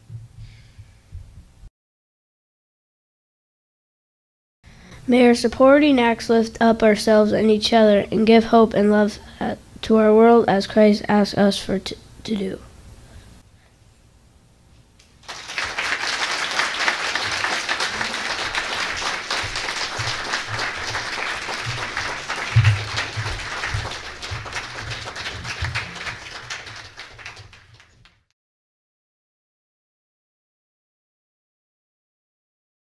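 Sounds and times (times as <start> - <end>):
audience applauding: 15.2 - 28.3.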